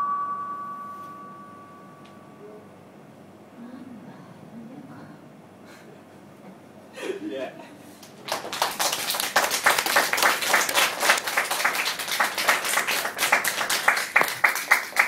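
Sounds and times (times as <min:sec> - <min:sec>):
hands clapping: 0:08.0 - 0:15.0.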